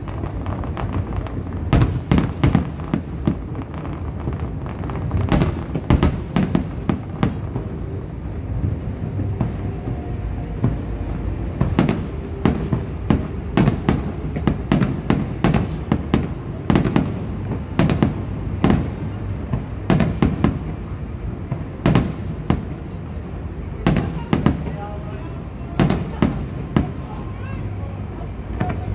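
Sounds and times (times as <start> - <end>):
low rumble: 2.7 - 23.5.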